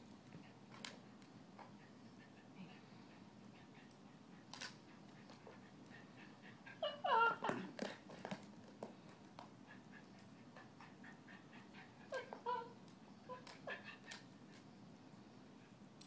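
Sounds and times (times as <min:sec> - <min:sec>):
small dog whining: 0:06.6 - 0:07.8, 0:12.0 - 0:14.2.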